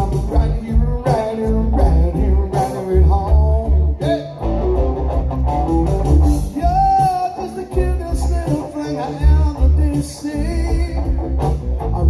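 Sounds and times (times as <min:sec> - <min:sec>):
deep bass line: 0:00.0 - 0:12.0
electric guitar: 0:00.0 - 0:12.0.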